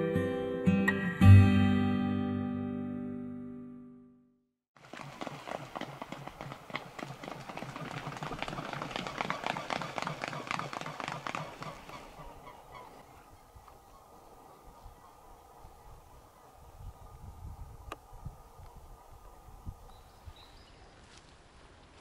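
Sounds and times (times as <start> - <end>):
feet slapping water: 4.8 - 11.9
swan wingbeats: 4.8 - 14.2.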